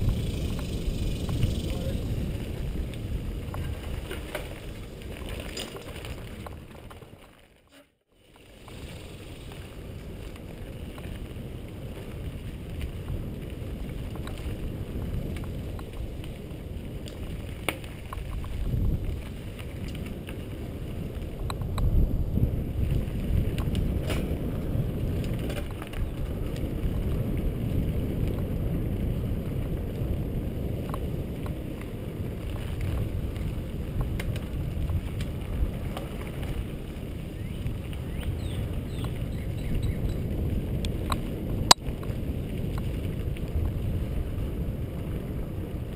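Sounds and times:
wind noise on microphone: 0.0s - 7.2s, 8.5s - 45.9s
bike clicks and rattles: 0.0s - 7.6s, 8.2s - 22.0s, 22.7s - 45.3s
tyres rumbling on dirt trail: 0.0s - 45.9s.

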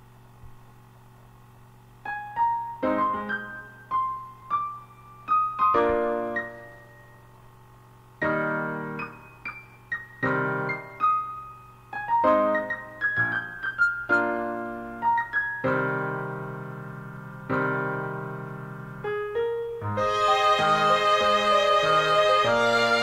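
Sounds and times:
slow solo piano piece: 2.0s - 7.2s, 8.2s - 20.9s.

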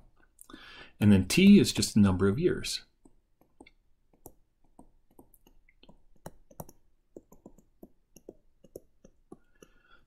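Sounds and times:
stylus tapping on pen tablet: 3.0s - 10.0s.

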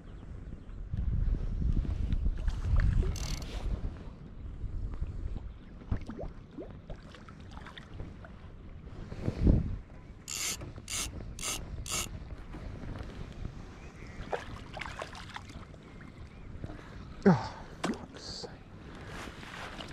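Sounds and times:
spinning reel buzzing: 3.2s - 3.5s, 10.3s - 12.1s.

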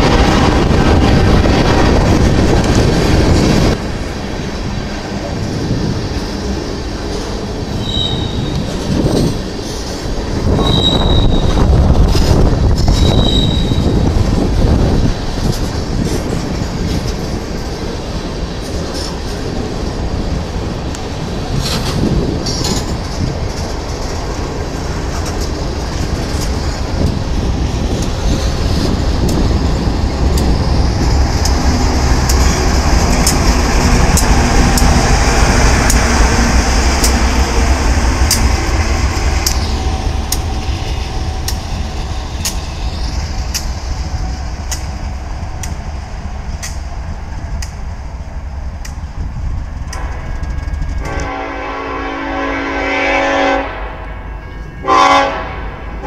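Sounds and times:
train rumbling past: 0.0s - 56.0s
wheels clicking over rail joints: 4.9s - 47.9s.

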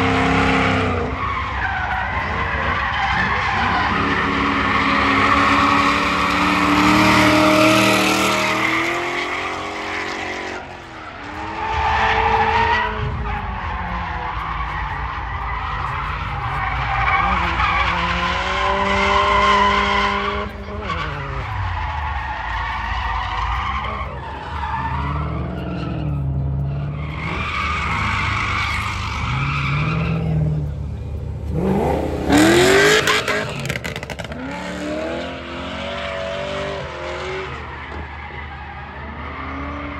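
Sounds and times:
car engine revving: 0.0s - 39.9s
tyres squealing: 0.1s - 30.7s.

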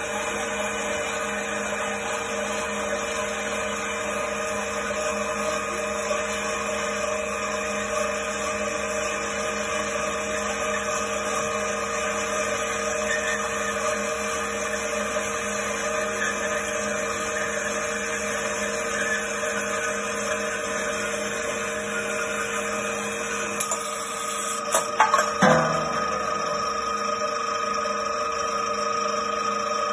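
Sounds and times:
band saw cutting steel tube: 10.2s - 27.2s.

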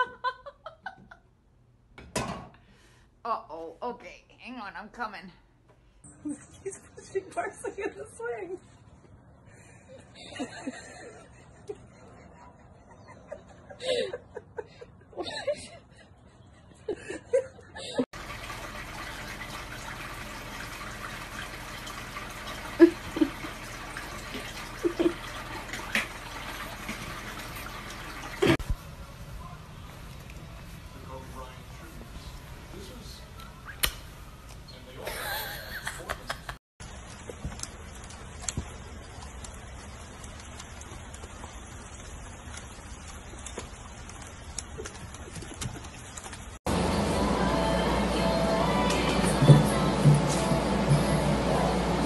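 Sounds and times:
rain on a wooden deck: 18.2s - 32.9s, 36.8s - 47.5s
steady hiss of running water: 18.2s - 33.3s, 36.8s - 45.6s.

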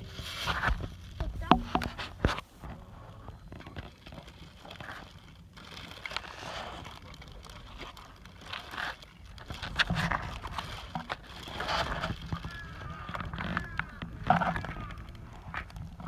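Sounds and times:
plastic bags crinkling: 3.4s - 16.0s
wind rumble on microphone: 9.3s - 16.0s.

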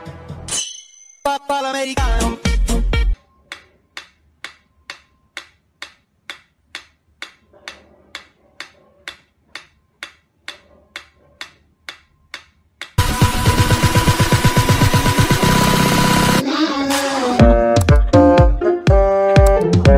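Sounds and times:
loud electronic music: 1.6s - 3.2s, 13.0s - 19.9s
metronome ticking: 3.4s - 13.1s, 17.4s - 19.9s.

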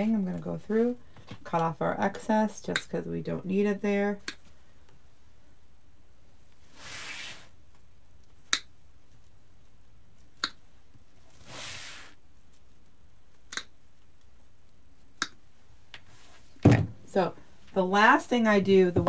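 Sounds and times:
soft rustles of handling: 15.5s - 16.6s.

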